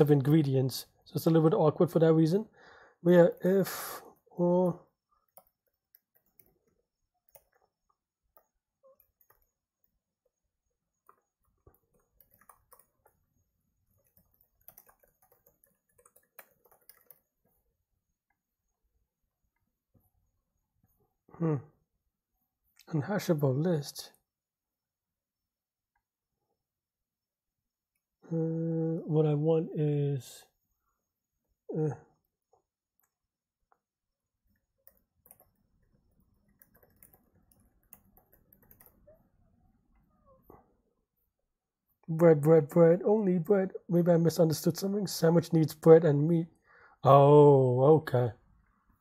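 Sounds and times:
faint computer keyboard typing: 0:03.1 - 0:21.0, 0:32.1 - 0:40.6.

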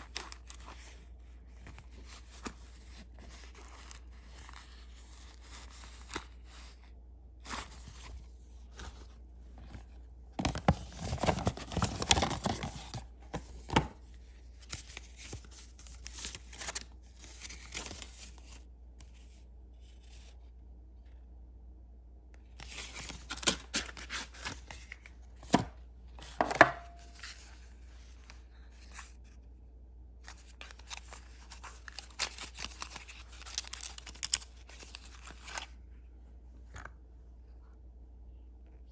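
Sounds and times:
paper packaging crinkling: 0:10.4 - 0:13.1, 0:14.5 - 0:18.6, 0:22.6 - 0:25.1, 0:30.3 - 0:35.8.

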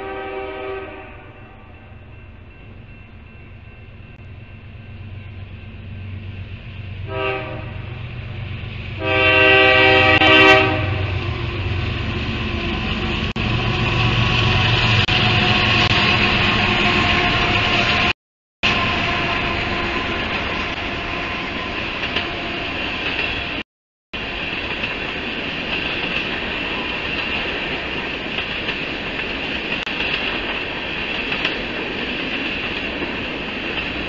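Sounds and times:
locomotive air horn: 0:00.0 - 0:01.6, 0:07.1 - 0:08.0, 0:09.0 - 0:11.4, 0:13.4 - 0:21.4
freight cars wheel and rail noise: 0:00.0 - 0:23.6, 0:24.2 - 0:34.0
locomotive engine rumble: 0:01.6 - 0:23.6.

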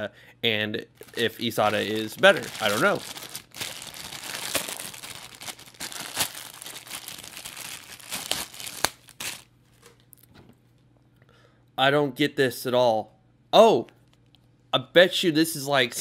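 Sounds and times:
plastic bag crinkling: 0:01.0 - 0:09.9.

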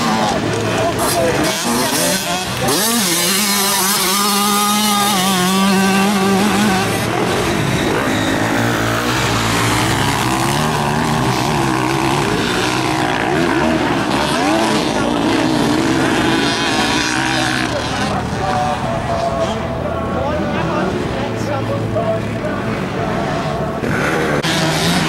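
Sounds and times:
motocross motorcycle engines revving: 0:00.0 - 0:25.0.

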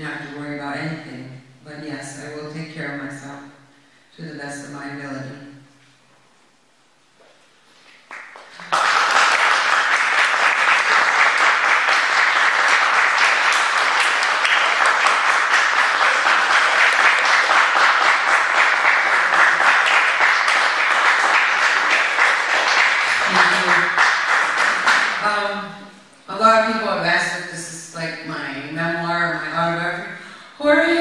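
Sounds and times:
audience applauding: 0:07.9 - 0:25.2.

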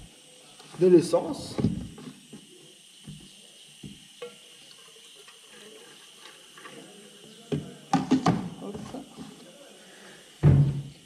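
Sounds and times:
thump: 0:01.6 - 0:02.0, 0:10.4 - 0:10.9.

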